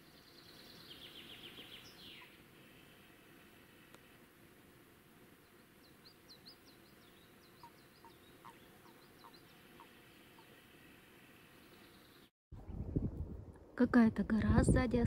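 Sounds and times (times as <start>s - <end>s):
birds chirping: 0.0s - 3.9s, 5.2s - 12.3s.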